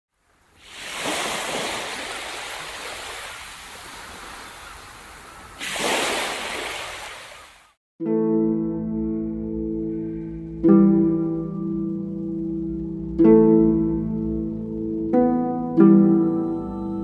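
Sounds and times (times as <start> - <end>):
sea waves breaking on beach: 0.3 - 7.8.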